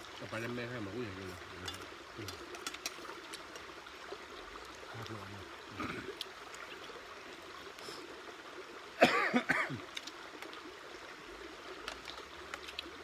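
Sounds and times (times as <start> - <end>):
man coughing: 9.0 - 9.8.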